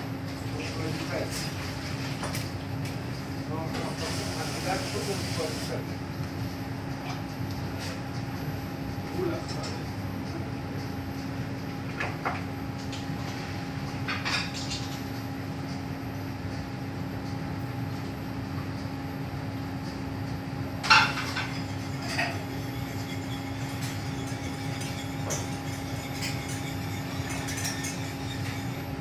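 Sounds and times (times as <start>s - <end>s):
extraction hood fans humming: 0.0s - 29.0s
metal pots and utensils clanking: 20.8s - 28.8s.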